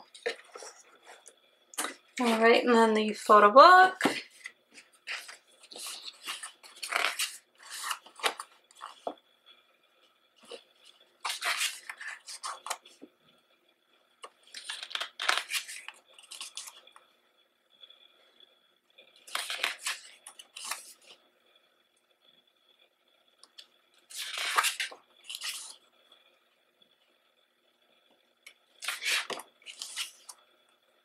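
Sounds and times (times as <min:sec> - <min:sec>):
photo book pages rustling: 0:00.0 - 0:02.5, 0:04.0 - 0:09.2, 0:10.4 - 0:10.6, 0:11.2 - 0:13.1, 0:14.3 - 0:17.0, 0:19.2 - 0:21.2, 0:24.0 - 0:25.8, 0:28.8 - 0:30.4.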